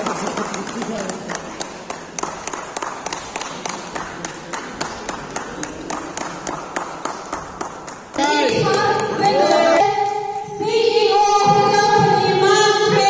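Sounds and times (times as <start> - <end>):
small crowd applauding: 0.0 - 9.7
sharp hand claps: 0.0 - 10.2.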